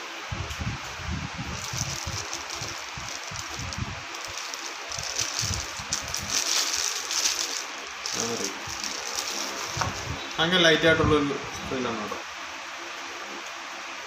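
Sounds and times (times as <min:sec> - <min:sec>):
plastic bag crinkling: 0:01.4 - 0:10.2.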